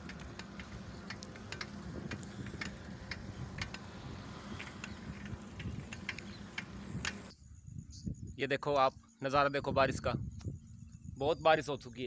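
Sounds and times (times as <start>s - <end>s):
light clicks and ticks: 0.0s - 3.9s, 4.6s - 7.3s
low steady rumble: 0.0s - 8.4s.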